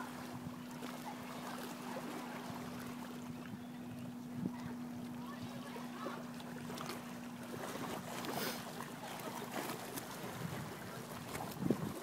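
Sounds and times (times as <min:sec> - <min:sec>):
water lapping at seawall: 0:00.0 - 0:12.0
wind on microphone: 0:03.2 - 0:05.8, 0:10.2 - 0:12.0.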